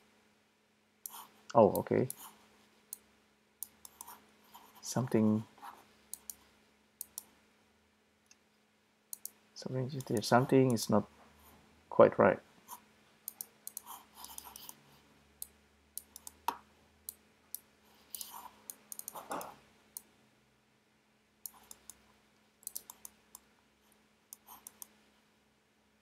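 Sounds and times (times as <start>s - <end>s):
computer mouse clicking: 1.0s - 4.2s, 6.1s - 6.4s, 7.0s - 7.3s, 9.1s - 10.8s, 13.2s - 14.8s, 15.4s - 20.1s, 21.4s - 22.0s, 22.6s - 23.5s, 24.3s - 25.0s.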